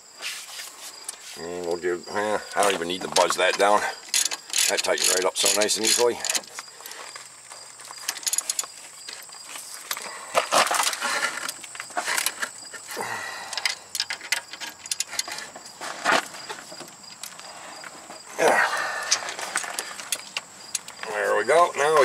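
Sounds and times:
wrench clinking on metal: 3.2 - 6.6, 8.0 - 10.0.

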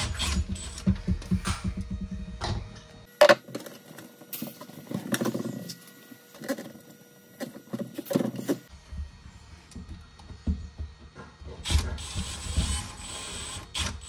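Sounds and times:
drill-driver running in pulses: 0.0 - 2.1, 11.6 - 14.0.

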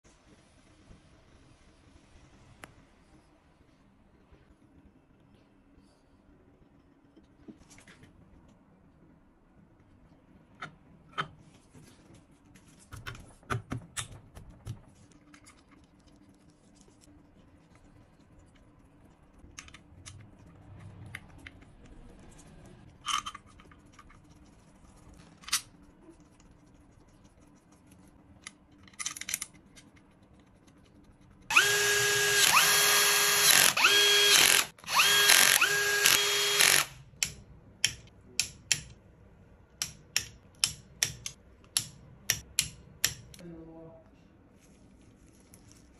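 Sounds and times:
power tool motor whine: 31.5 - 37.0
parts and tools clicking: 39.8 - 43.4.

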